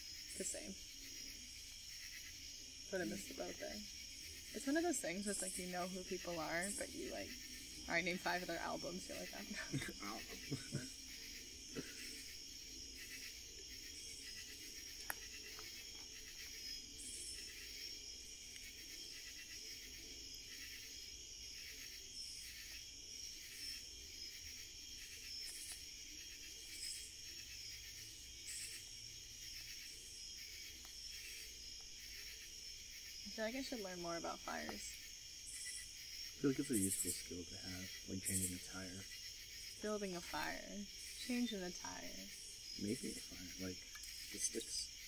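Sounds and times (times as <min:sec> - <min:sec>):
wood fire crackling: 0:00.0 - 0:22.2
night insects trilling: 0:00.0 - 0:45.0
pulsed insect calls: 0:00.0 - 0:45.0.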